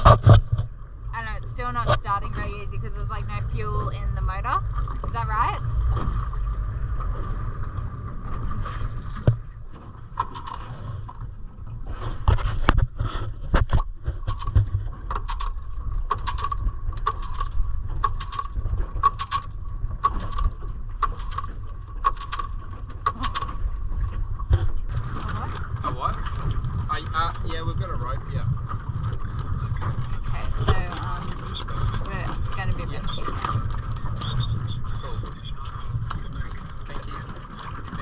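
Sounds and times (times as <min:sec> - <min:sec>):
outboard motor cranking: 0:00.0 - 0:38.0.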